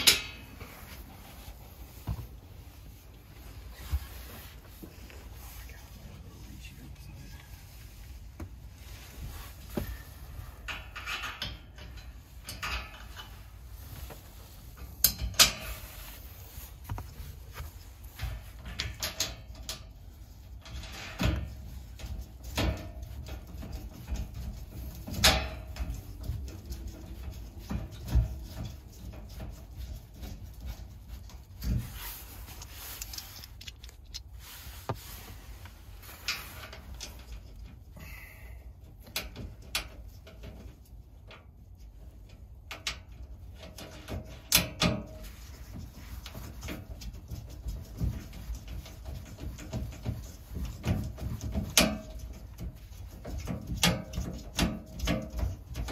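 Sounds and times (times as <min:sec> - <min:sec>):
metal shelf clicks and knocks: 0:00.0 - 0:00.6, 0:10.6 - 0:13.4, 0:14.9 - 0:15.8, 0:18.3 - 0:20.0, 0:20.6 - 0:30.8, 0:42.7 - 0:45.9, 0:46.5 - 0:55.9.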